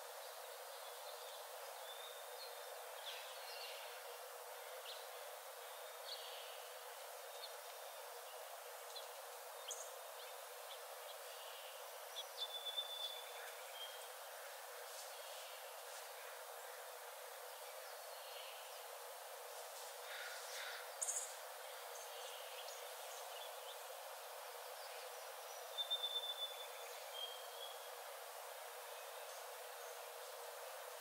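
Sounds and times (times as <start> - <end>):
steady forest background noise: 0.0 - 31.0
bird calls and chirps: 25.7 - 27.8.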